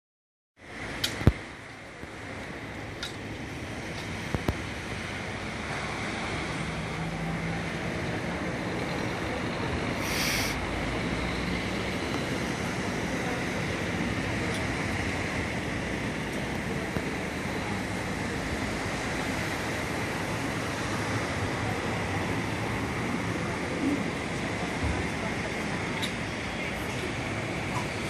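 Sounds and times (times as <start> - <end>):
low engine hum: 0.6 - 28.0
road traffic: 0.6 - 28.0
short hiss: 10.0 - 10.6.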